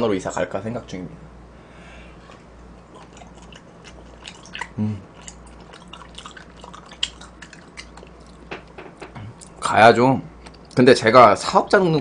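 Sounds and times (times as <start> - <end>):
wet chewing: 2.3 - 9.6.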